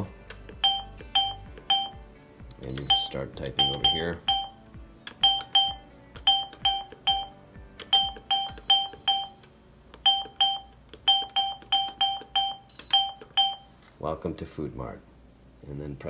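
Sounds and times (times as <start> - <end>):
keypad beeps: 0.5 - 2.0, 2.6 - 13.7.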